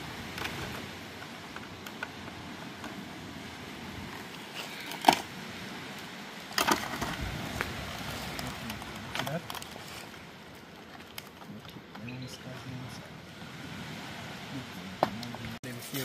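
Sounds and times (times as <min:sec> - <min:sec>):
steady background hiss: 0:00.0 - 0:16.0
cooking gear clicks and knocks: 0:08.3 - 0:10.2.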